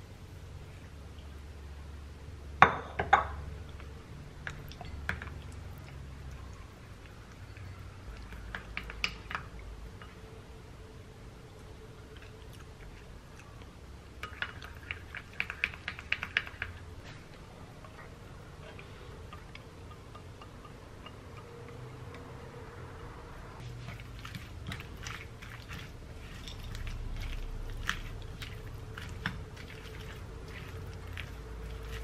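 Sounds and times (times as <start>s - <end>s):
thick sauce being stirred: 3.7s - 10.4s, 11.5s - 22.2s, 23.6s - 32.0s
spatula scraping bowl: 23.6s - 32.0s
spoon clinking glass bowl: 26.2s - 28.0s.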